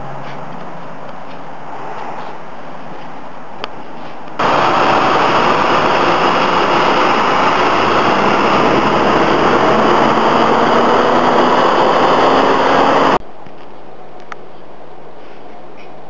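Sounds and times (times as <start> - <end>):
faint rising tone: 4.4 - 13.2
truck engine running: 4.4 - 13.2.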